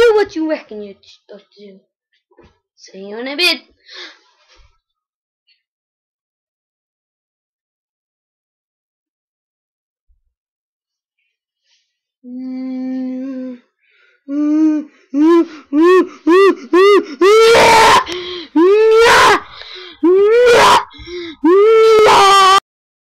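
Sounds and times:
person moaning like a zombie: 0:14.3 - 0:22.6.

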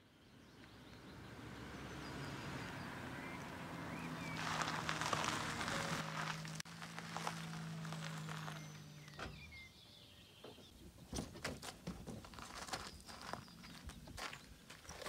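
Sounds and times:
tyres crunching over gravel: 0:03.2 - 0:10.3, 0:11.2 - 0:15.0.

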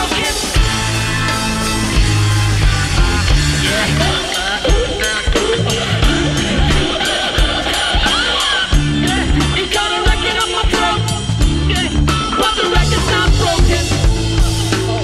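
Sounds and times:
song with drum beat and bass: 0:00.0 - 0:15.0.

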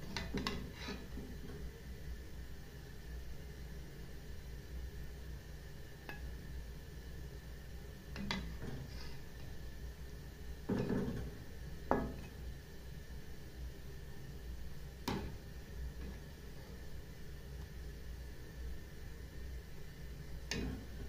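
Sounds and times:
steady low hum: 0:00.0 - 0:21.0
spoon scraping metal pot: 0:00.2 - 0:01.2.

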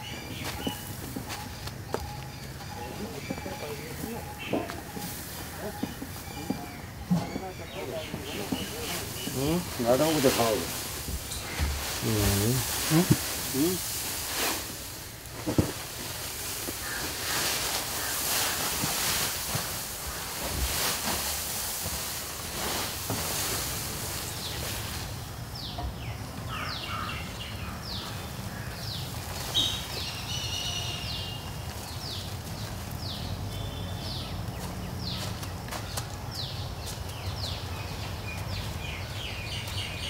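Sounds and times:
straw chaff pouring and rustling: 0:03.1 - 0:25.4.

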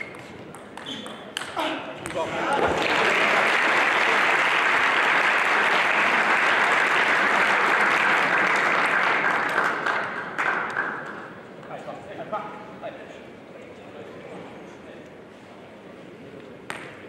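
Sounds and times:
spectators applauding: 0:02.4 - 0:11.2.

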